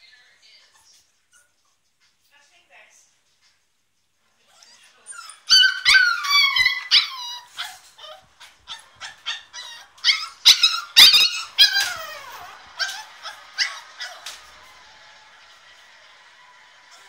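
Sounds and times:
puppy screaming and yelping: 0:04.5 - 0:14.6.

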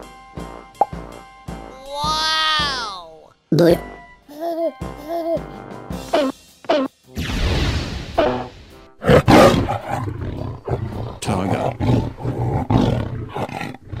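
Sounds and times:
tiger roaring and growling: 0:09.0 - 0:14.0.

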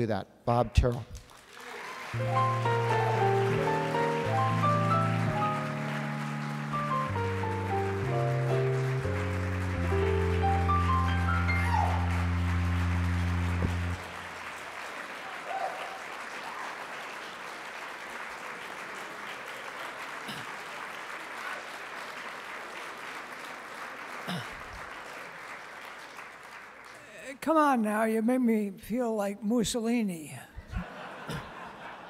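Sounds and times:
audience applause: 0:01.2 - 0:27.3
music with rising run of notes: 0:02.2 - 0:14.2.

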